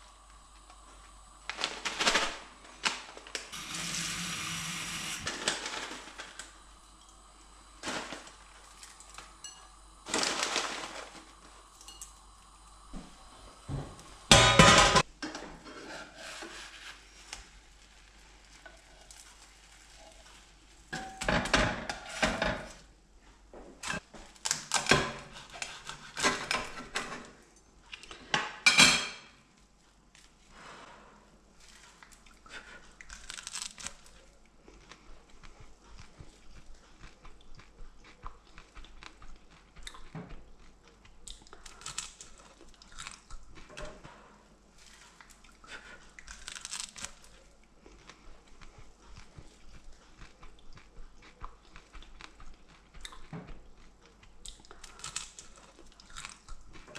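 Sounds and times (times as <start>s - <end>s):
spatula scraping frying pan: 14.3s - 17.2s.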